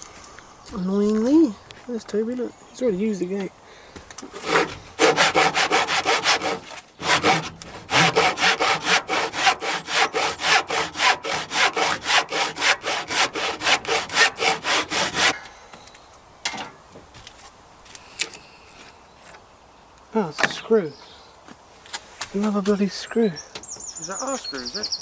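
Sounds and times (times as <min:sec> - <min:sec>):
hand saw cutting wood: 0:04.2 - 0:15.4.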